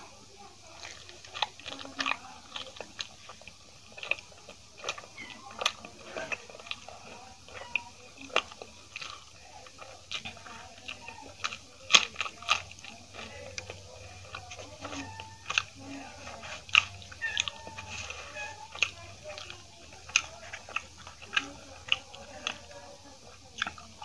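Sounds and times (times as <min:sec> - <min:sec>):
person chewing food: 0:00.0 - 0:24.0.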